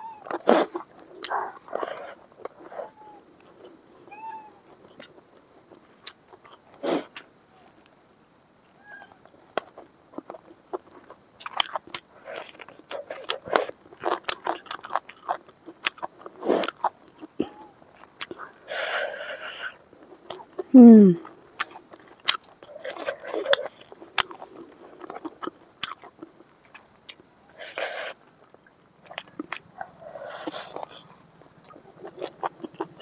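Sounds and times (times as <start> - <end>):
crunchy bites and chewing: 9.0 - 33.0.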